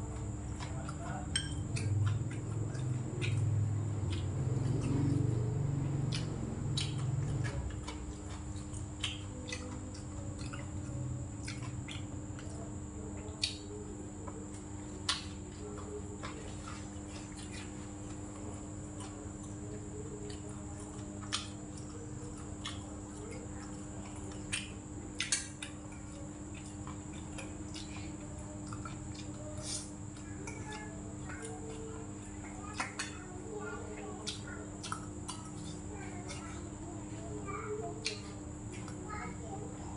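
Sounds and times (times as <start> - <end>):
chewing: 0.0 - 39.9
electrical hum: 0.0 - 39.9
utensils tapping metal bowl: 0.6 - 2.9.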